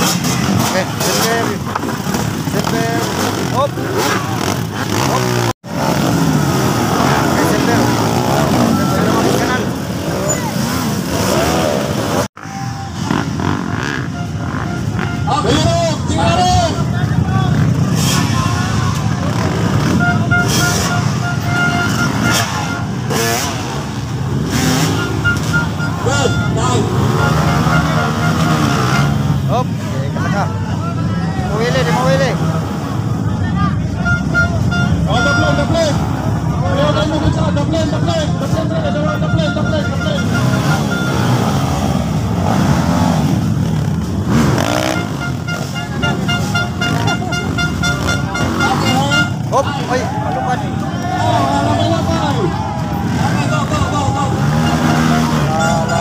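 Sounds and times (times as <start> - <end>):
dirt bike engines revving: 0.0 - 56.0
short beeps: 8.0 - 9.7, 24.6 - 28.9.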